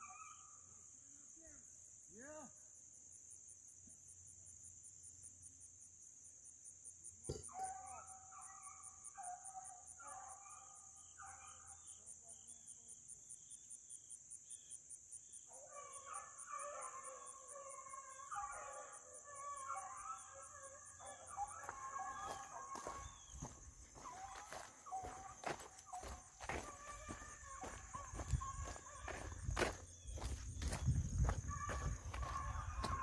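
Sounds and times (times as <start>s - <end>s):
insects chirring: 0.0s - 33.0s
beagles baying: 15.6s - 33.0s.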